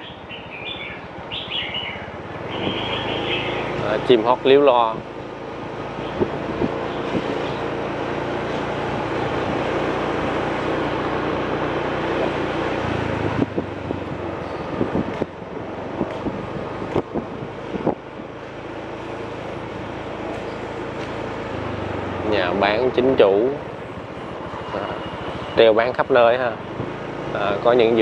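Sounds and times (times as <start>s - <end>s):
vehicle engine running: 0.0s - 28.0s
wind on microphone: 2.3s - 3.9s, 6.0s - 7.8s, 11.5s - 18.4s.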